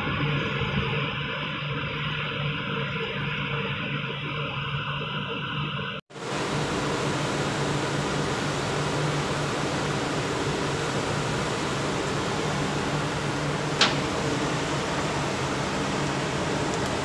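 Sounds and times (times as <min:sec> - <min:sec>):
ship machinery hum: 0:00.0 - 0:17.0
ventilation hiss: 0:06.2 - 0:17.0.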